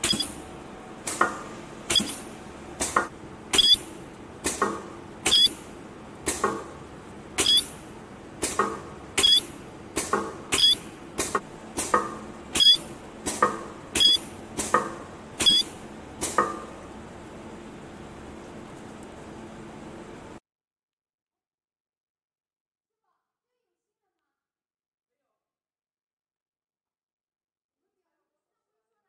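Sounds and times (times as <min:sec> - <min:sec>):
welding machine clicks: 0:00.0 - 0:17.0
high-pitched whine: 0:03.6 - 0:03.9, 0:05.3 - 0:05.7.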